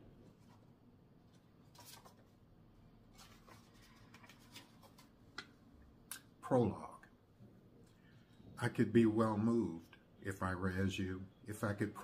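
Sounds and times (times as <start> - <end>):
book pages leafed through: 1.3 - 2.4, 3.1 - 5.2.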